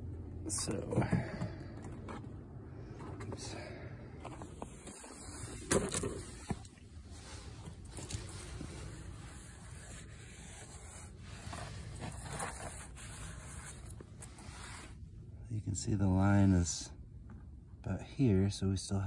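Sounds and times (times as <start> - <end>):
paper towel rubbing plastic: 7.2 - 15.0.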